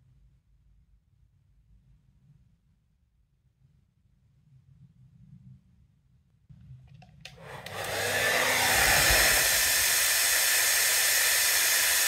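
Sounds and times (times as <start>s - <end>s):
hair dryer blowing air: 7.2s - 12.0s
hair dryer switch click: 7.2s - 12.0s.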